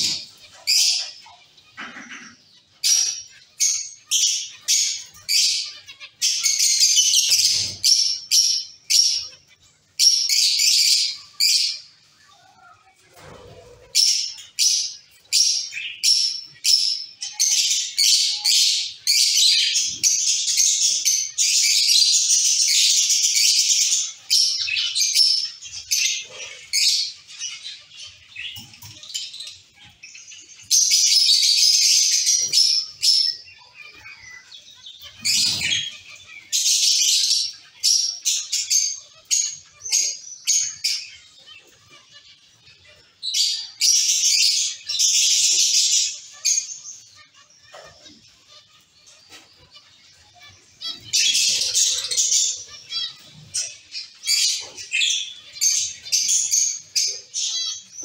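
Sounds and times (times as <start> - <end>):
finches chirping: 0.0 - 58.0.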